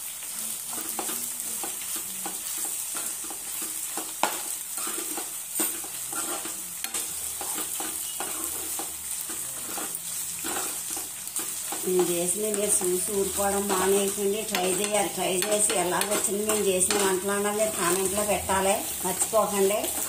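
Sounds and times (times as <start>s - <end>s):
leaves sizzling in a pan: 0.0s - 20.0s
spatula scraping a pan: 0.7s - 20.0s.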